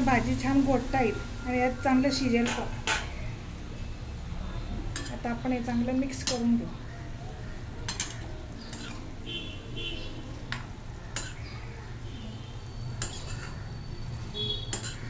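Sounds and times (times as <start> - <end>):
spoon stirring thick curry: 4.7 - 15.0
spoon clinking on metal pan: 4.9 - 5.3, 7.8 - 9.0, 10.5 - 11.4, 13.0 - 13.7, 14.6 - 15.0.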